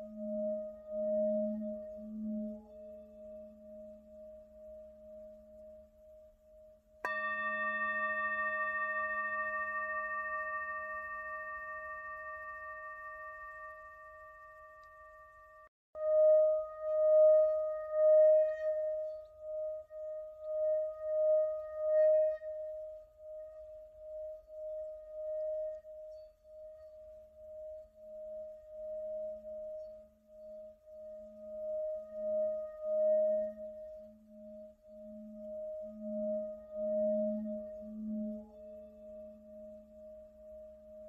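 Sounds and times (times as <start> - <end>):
singing bowl ringing: 0.0 - 6.2, 7.0 - 23.4, 24.0 - 41.0
low hum: 0.0 - 15.7.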